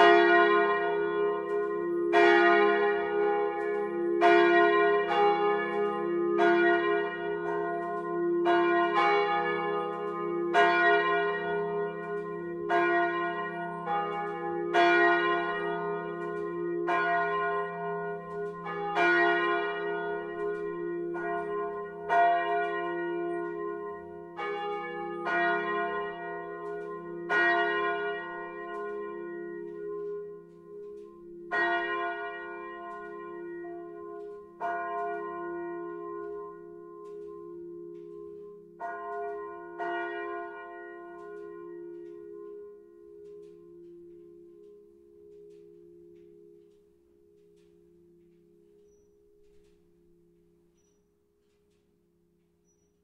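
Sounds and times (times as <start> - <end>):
church bells pealing: 0.0 - 52.2.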